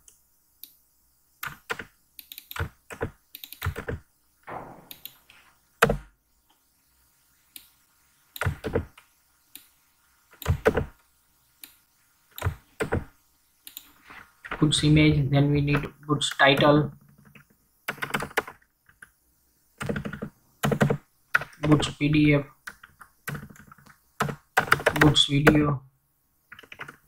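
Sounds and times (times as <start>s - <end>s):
single louder knock: 4.5s - 5.4s
keyboard keys clicking: 26.5s - 27.0s.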